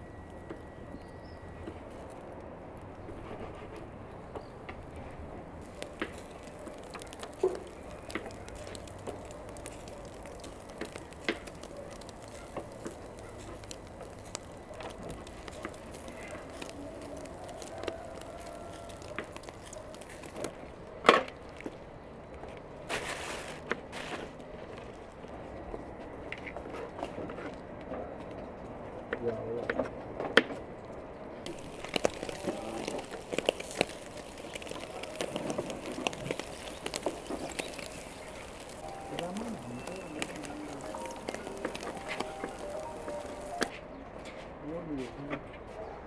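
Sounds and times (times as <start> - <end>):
crackling: 0.0 - 27.5, 31.4 - 43.8
metal skewers clicking on grill: 5.6 - 20.5
steady low hiss: 35.8 - 43.7.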